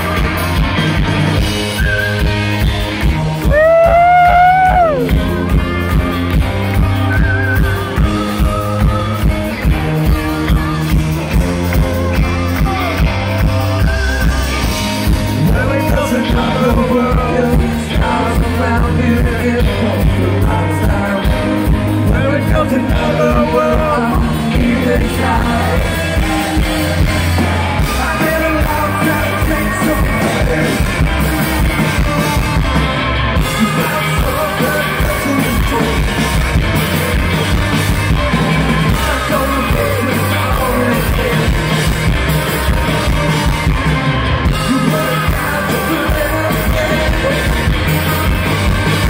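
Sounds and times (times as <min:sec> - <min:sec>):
rock band playing live: 0:00.0 - 0:49.0
person singing lead vocal: 0:07.1 - 0:32.5, 0:33.4 - 0:37.6, 0:38.8 - 0:43.6, 0:44.4 - 0:49.0.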